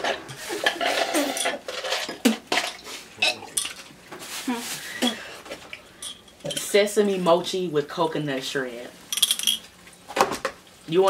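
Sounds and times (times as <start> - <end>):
plastic packaging rustling: 3.8 - 5.7.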